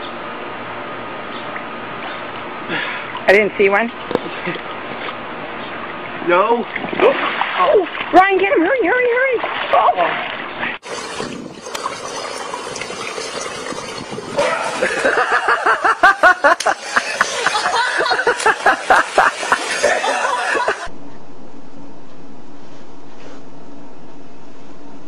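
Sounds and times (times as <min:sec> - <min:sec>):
swimming pool water washing: 0:04.2 - 0:20.9
people laughing hard: 0:14.4 - 0:20.9.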